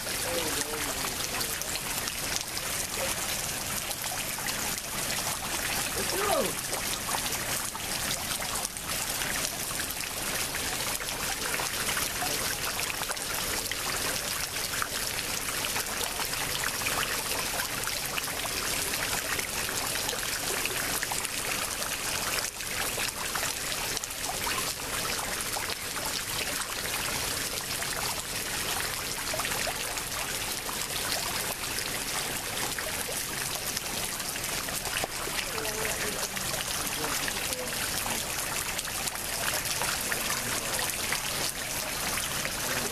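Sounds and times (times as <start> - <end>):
floodwater flowing: 0.0 - 42.9.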